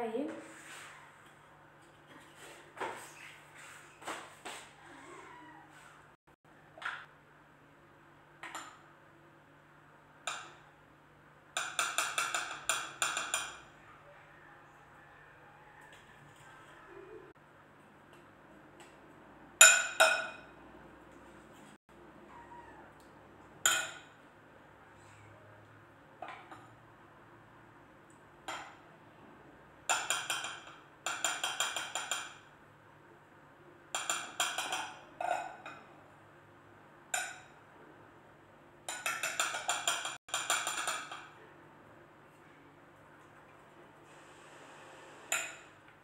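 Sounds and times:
metal utensils clinking on bowl: 33.9 - 36.0, 38.9 - 41.4.

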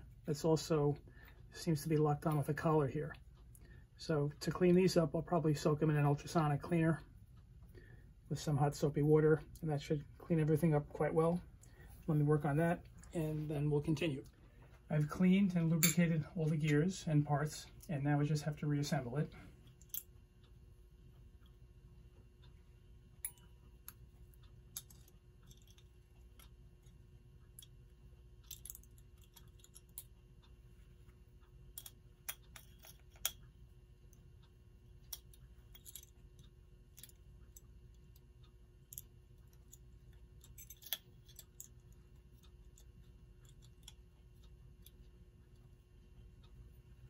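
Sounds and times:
low steady hum: 0.0 - 47.0
small clock parts clicking: 17.7 - 47.0.

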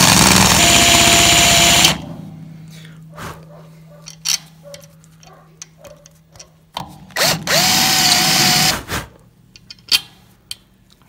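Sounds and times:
drill whining into aluminum: 0.0 - 2.0, 7.2 - 8.8.

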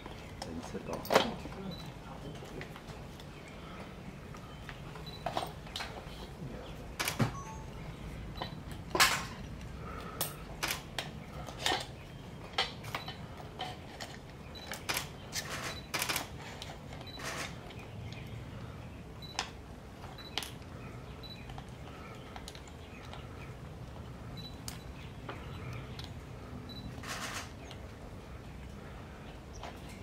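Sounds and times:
low background hum: 0.0 - 30.0
camera shutters clicking: 7.0 - 7.4, 10.6 - 10.9, 14.7 - 16.4, 27.0 - 27.6.

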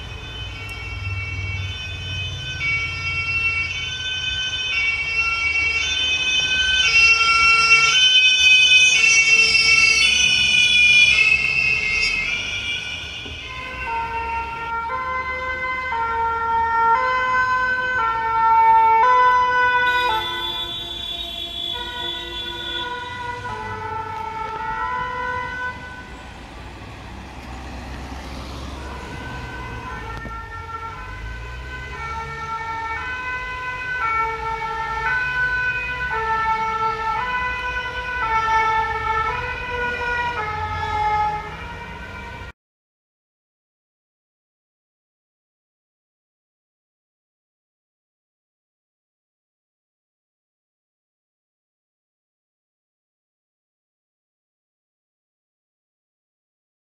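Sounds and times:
traffic noise: 0.0 - 42.6
two-tone ambulance siren: 0.0 - 42.6.

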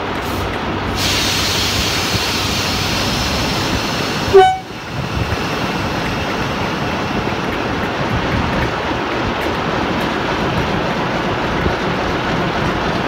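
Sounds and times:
diesel locomotive engine running: 0.0 - 13.0
locomotive horn blast: 4.3 - 4.8.

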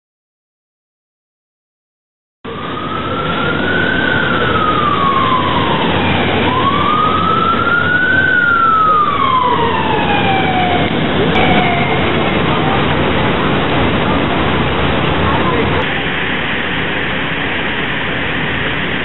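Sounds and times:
siren wailing: 2.5 - 13.6
steady rushing noise: 2.5 - 19.0.

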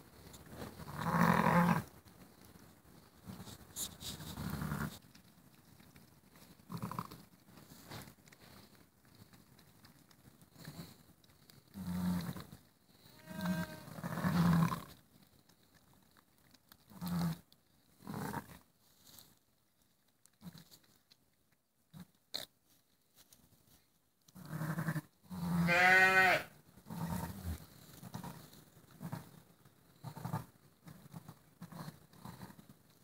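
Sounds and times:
high-pitched bleats: 13.0 - 14.8, 24.4 - 27.5
sheep low rumbling calls: 13.1 - 14.9.

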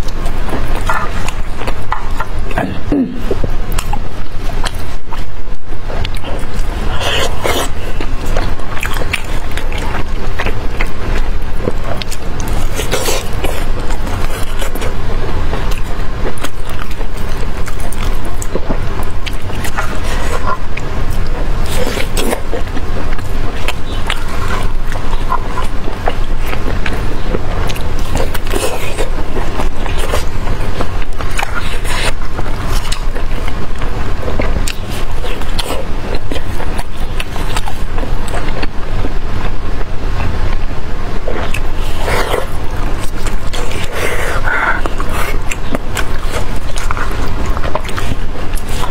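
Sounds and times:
loud steady low rumble: 0.0 - 48.9
person chewing wetly: 0.0 - 48.9
hands squeezing and tearing meat: 6.0 - 38.6.

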